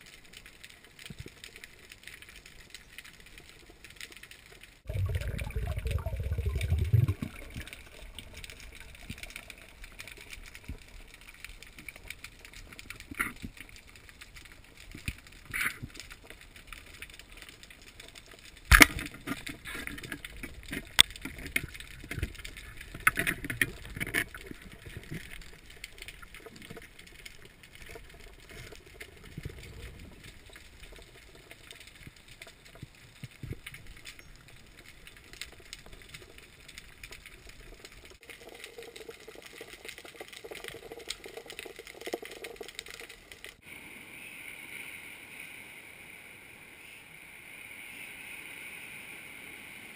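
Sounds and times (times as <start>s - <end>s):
wind: 0.0s - 49.9s
underwater clicks and knocks: 18.1s - 31.0s
underwater hiss: 43.6s - 49.9s.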